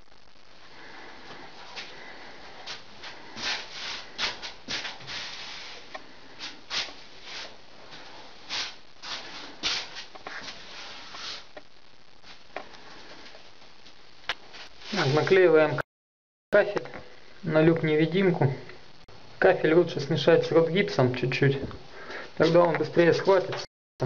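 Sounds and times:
steady hiss: 0.0s - 15.8s
short rustling and rubbing: 1.4s - 11.6s.

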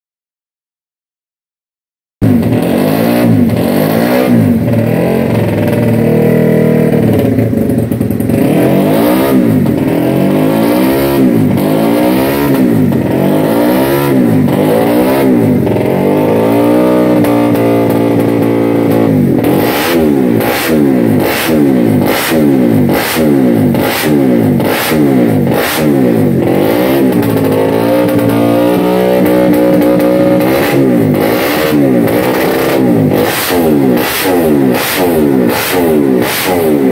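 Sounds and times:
motorcycle engine revving: 2.2s - 36.9s
sharp exhaust cracks: 17.0s - 36.9s.

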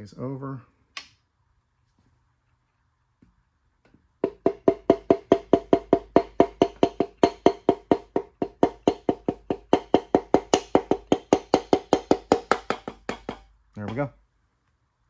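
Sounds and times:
light hammer taps with hollow ring: 5.6s - 14.2s.

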